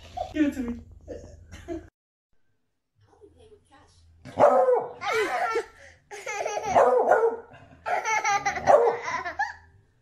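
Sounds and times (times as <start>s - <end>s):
baby laughing: 5.0s - 7.0s, 7.8s - 9.7s.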